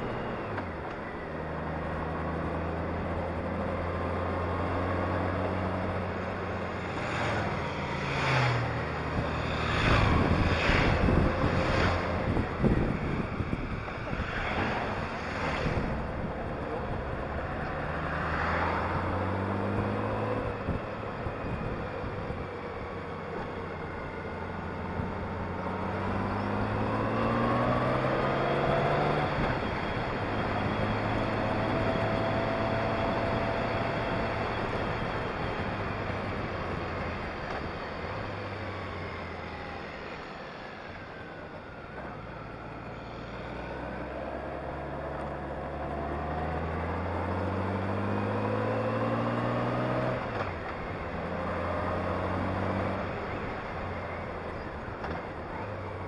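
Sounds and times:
wind noise on microphone: 9.0 - 17.5, 18.7 - 22.9.

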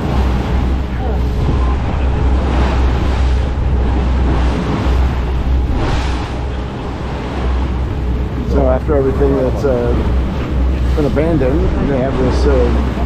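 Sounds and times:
boat engine drone: 0.0 - 13.0
wake rushing: 0.0 - 13.0
wind buffeting microphone: 0.0 - 13.0.

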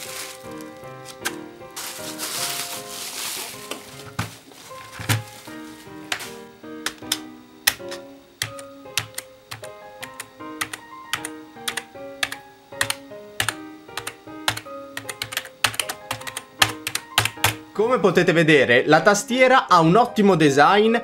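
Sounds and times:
background music: 0.0 - 21.0
keyboard key clacks: 6.8 - 17.6.

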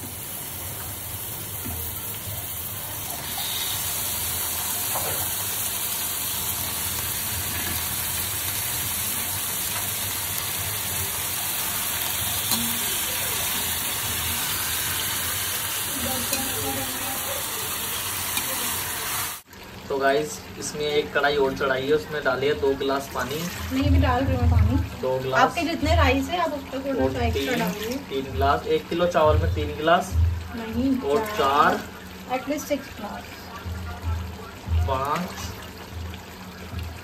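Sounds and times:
chicken sizzling in hot oil: 0.0 - 37.0
metal spatula stirring: 27.3 - 28.1.

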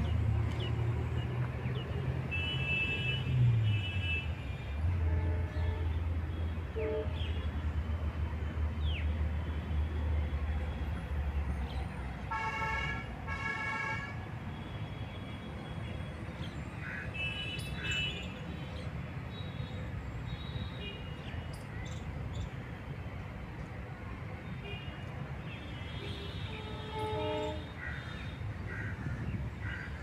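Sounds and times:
traffic rumble: 0.0 - 30.0
vehicle horn honking: 25.6 - 27.8.

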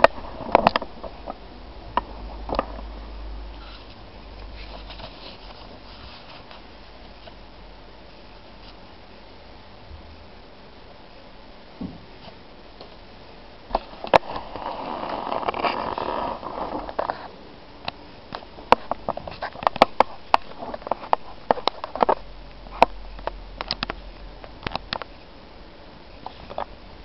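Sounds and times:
rustle: 0.0 - 9.0
sharp irregular clicks: 17.8 - 25.2.

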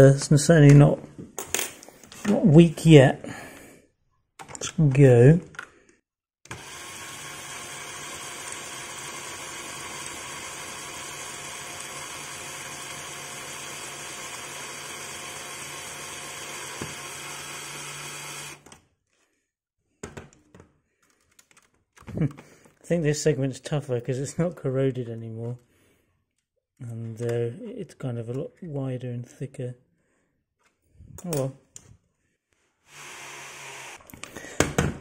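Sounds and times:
cordless drill running: 6.5 - 18.7, 32.9 - 34.1.

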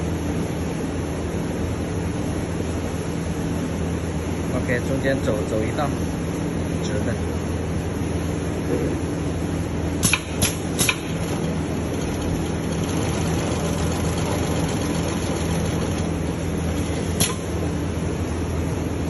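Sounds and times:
sewing machine motor humming: 11.2 - 17.4.

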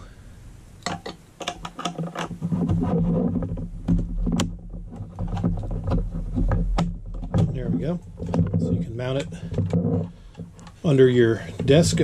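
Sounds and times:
steady low hum: 0.0 - 12.0
metal brackets clicking and rattling: 0.8 - 2.7, 3.4 - 12.0.

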